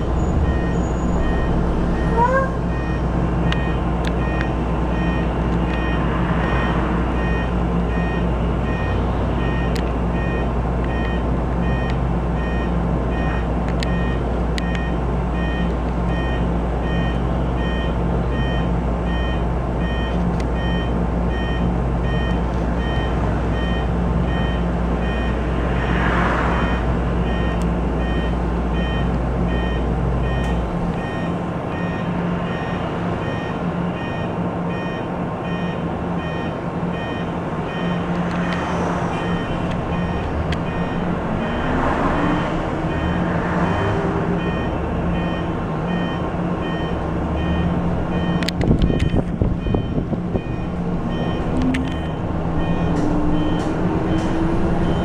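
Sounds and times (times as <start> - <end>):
repeating electronic beep: 0.0 - 14.2, 39.2 - 43.8, 44.4 - 54.2.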